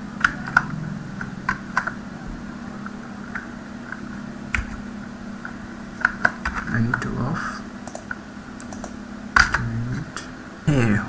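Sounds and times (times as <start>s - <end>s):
low steady hum: 0.0s - 11.0s
computer keyboard keystrokes: 7.8s - 9.7s.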